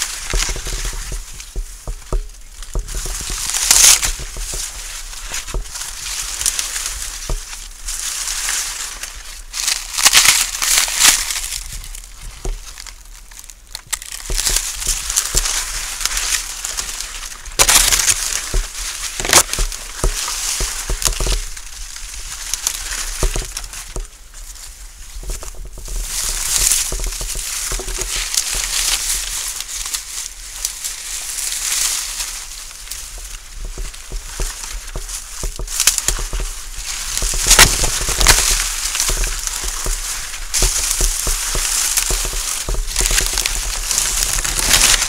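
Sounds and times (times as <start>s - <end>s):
dry corn leaves rustling: 0.0s - 45.0s.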